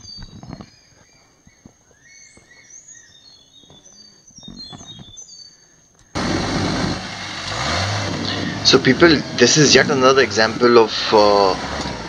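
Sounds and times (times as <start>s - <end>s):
footsteps on dirt trail: 0.0s - 5.3s
birds chirping and calling: 0.0s - 6.1s
loud engine noise: 6.1s - 12.0s.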